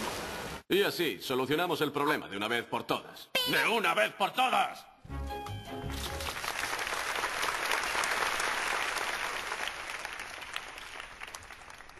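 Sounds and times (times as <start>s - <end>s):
audience applauding: 5.9s - 11.9s.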